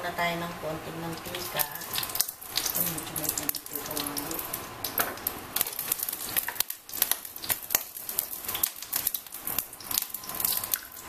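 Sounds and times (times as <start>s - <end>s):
oil crackling in a frying pan: 1.0s - 11.0s.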